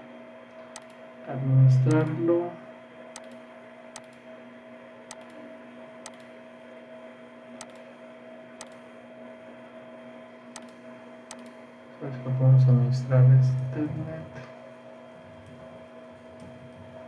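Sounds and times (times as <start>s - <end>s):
low electrical hum: 0.0s - 17.0s
computer mouse clicks: 0.7s - 1.0s, 3.2s - 3.4s, 4.0s - 4.2s, 5.1s - 5.4s, 6.0s - 6.3s, 7.6s - 7.9s, 8.6s - 8.8s, 10.5s - 11.6s.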